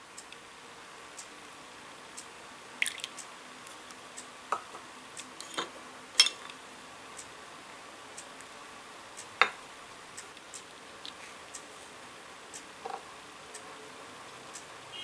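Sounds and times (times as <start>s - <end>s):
utensils clinking on glass bowl: 5.4s - 6.5s
clock ticking: 14.4s - 15.0s.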